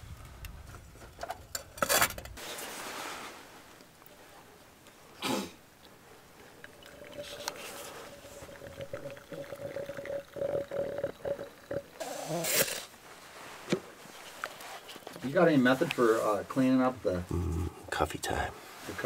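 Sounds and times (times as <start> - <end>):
air hissing through grounds: 11.9 - 16.5.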